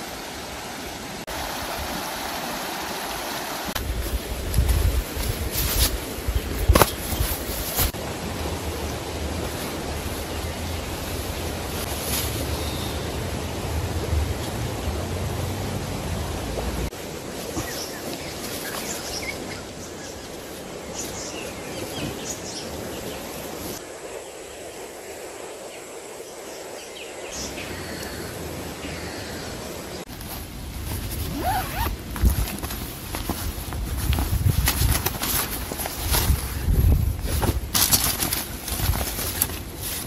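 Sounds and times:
steady rushing outdoor noise: 0:00.0 - 0:40.0
fabric mat rustling: 0:03.9 - 0:08.0, 0:30.1 - 0:40.0.

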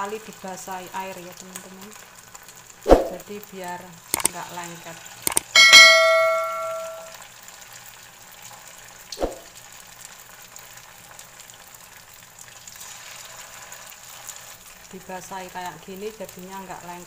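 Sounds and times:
metal spoon clanging on wok: 0:05.3 - 0:07.1.

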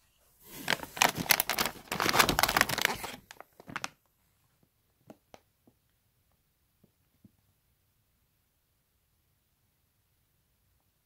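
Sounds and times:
packaging crinkling and rustling: 0:00.5 - 0:04.0.

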